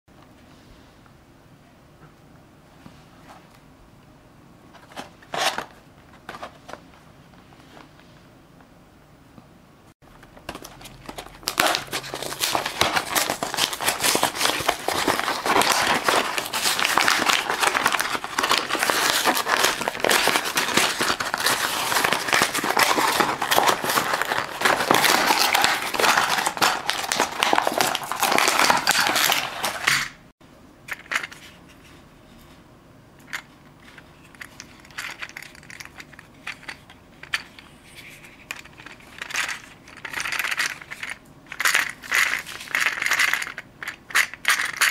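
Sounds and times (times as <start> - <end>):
plastic packaging crinkling: 10.1 - 30.2.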